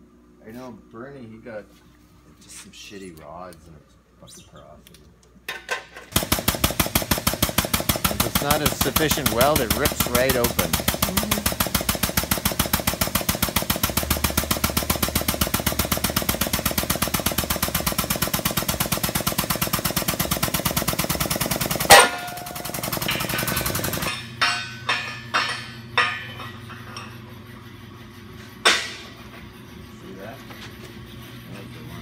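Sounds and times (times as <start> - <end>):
hydraulic pump pulsing: 8.0 - 22.0
metallic clanks of steel: 21.9 - 27.3, 28.6 - 29.2.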